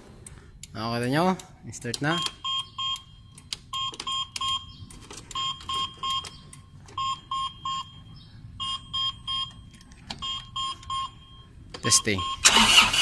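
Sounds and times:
forklift warning buzzer beeping: 2.1 - 4.8, 5.4 - 6.4, 7.0 - 13.0.

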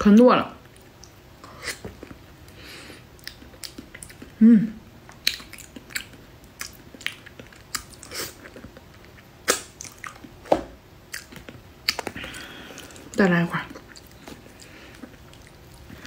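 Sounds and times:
wet chewing and lip smacking: 3.1 - 4.4, 5.0 - 10.4, 11.1 - 16.0
person humming mm: 4.4 - 4.8.

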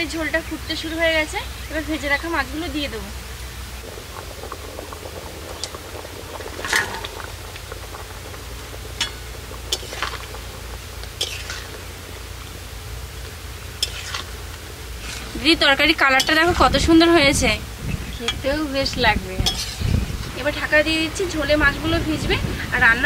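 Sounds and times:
curry boiling in pot: 0.0 - 23.0
soft splashes: 3.3 - 12.4
metal spatula clicking pot: 16.1 - 16.5, 19.4 - 19.8.

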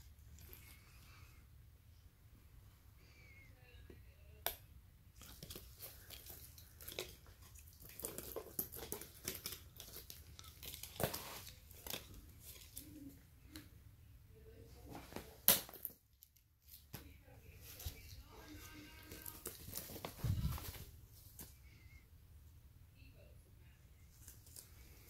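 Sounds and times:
bag rustling and crinkling: 17.6 - 21.6.

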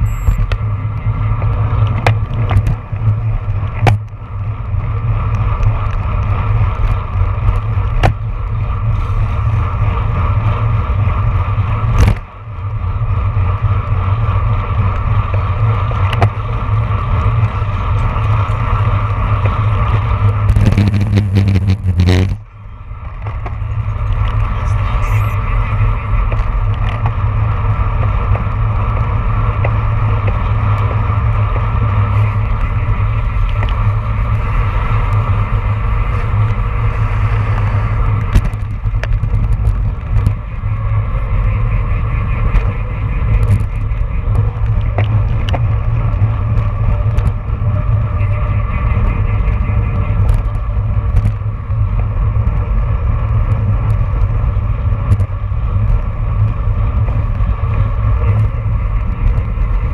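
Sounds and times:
tyre rumble on road: 0.0 - 59.9
wind buffeting microphone: 0.0 - 59.9.

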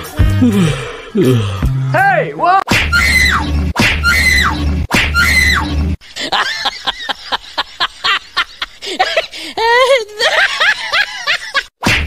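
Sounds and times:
rapid snickering laugh: 6.0 - 11.7.

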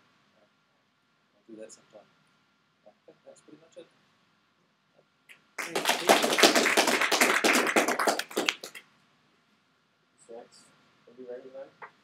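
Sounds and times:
audience applauding: 5.6 - 8.8.

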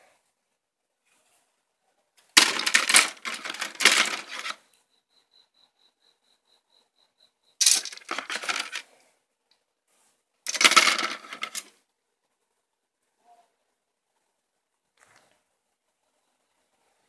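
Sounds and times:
plastic parts rattling and clattering: 2.4 - 4.6, 7.6 - 8.8, 10.5 - 11.7.

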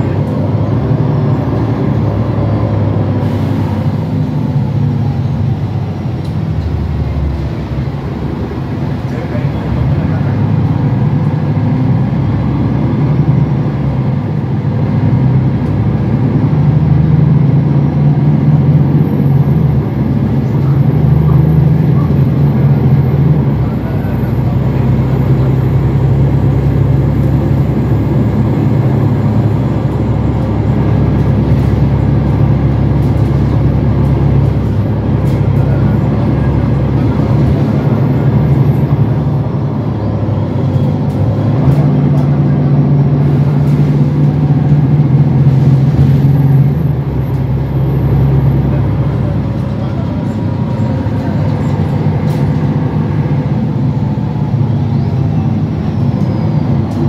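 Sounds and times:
bus engine drone: 0.0 - 57.0
road noise: 0.0 - 57.0.

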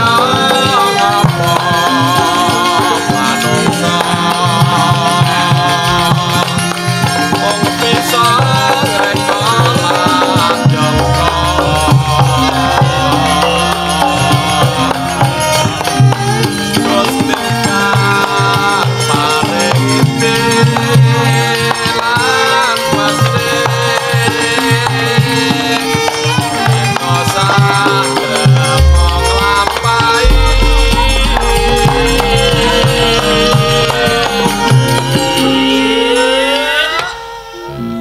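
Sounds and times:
hand drums: 0.0 - 37.1
wavering melody line: 9.8 - 17.5, 28.2 - 36.8
metallophones and gong-chimes ringing: 10.6 - 17.0, 28.7 - 36.5.

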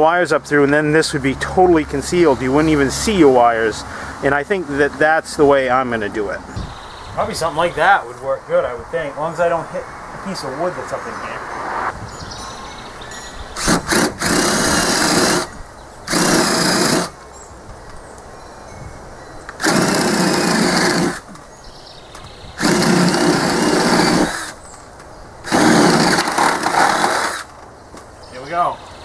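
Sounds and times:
electric drill boring into wood: 13.6 - 17.2, 19.6 - 21.3, 22.6 - 24.6, 25.5 - 27.5.

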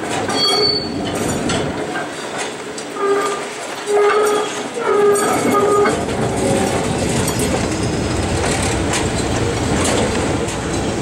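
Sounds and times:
wheels rumbling on rail: 0.0 - 11.0.

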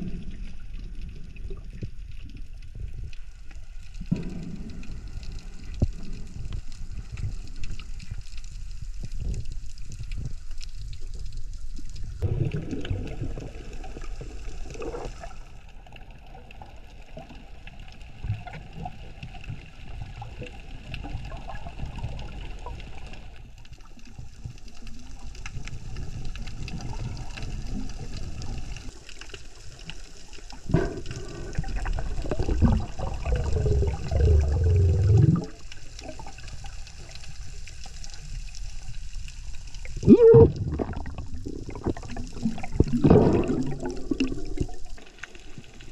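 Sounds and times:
low water rumble: 0.0 - 45.9
water rushing and bubbling: 0.0 - 45.9
underwater hiss: 29.9 - 45.9.

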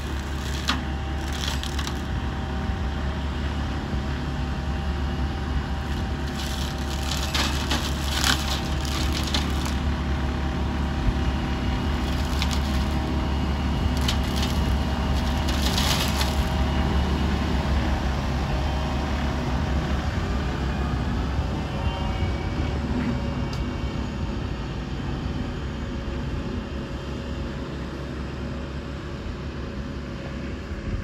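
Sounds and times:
branches cracking and splintering: 0.0 - 2.1, 5.8 - 10.0, 11.6 - 17.1
tractor droning: 0.0 - 31.0.

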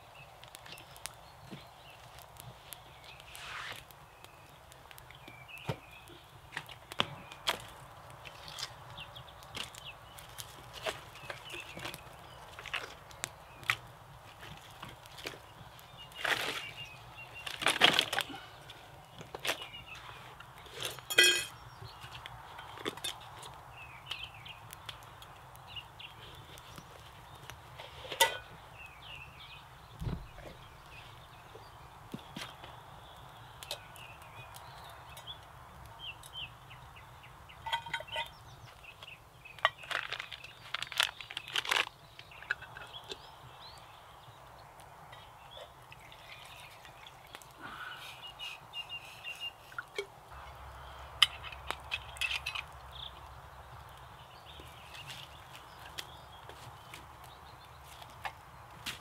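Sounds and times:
birds chirping: 0.0 - 58.8
campfire crackling: 0.0 - 59.0
metal flask clink: 21.1 - 21.5.

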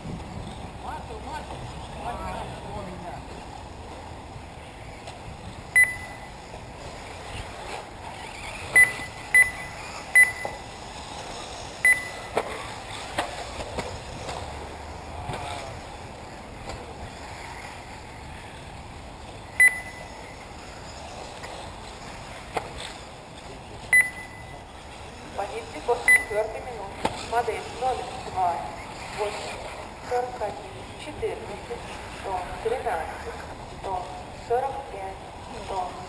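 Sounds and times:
steady outdoor hiss: 0.0 - 36.0
short high electronic beeps: 5.8 - 6.3, 8.7 - 10.6, 11.8 - 12.3, 19.6 - 20.4, 23.9 - 24.6, 26.1 - 26.4.

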